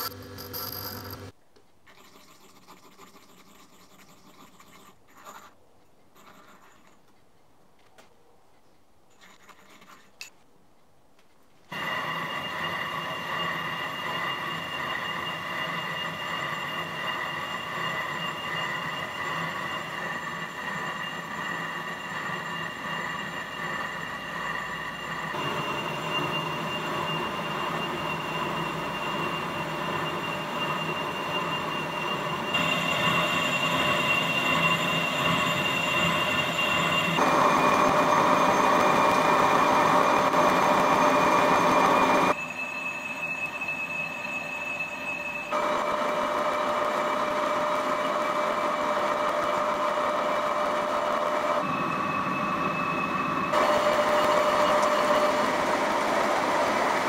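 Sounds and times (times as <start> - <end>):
high-pitched whine: 0.0 - 1.3, 11.7 - 57.0
metal lathe cutting: 11.7 - 57.0.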